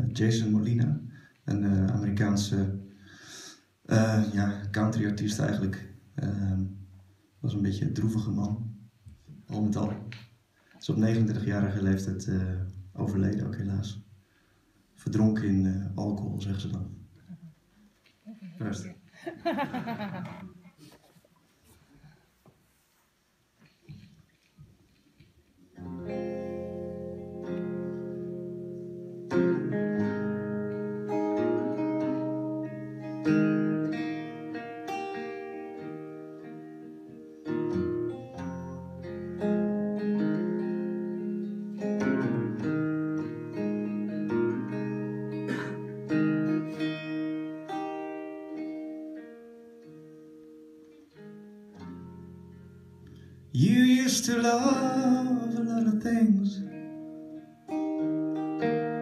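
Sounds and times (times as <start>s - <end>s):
electric guitar playing: 25.8s - 54.0s, 56.6s - 59.0s.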